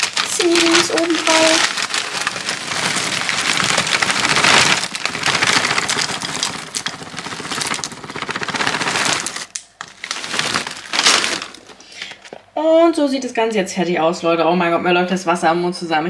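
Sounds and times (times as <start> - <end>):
cereal pouring into a bowl: 0.0 - 12.4.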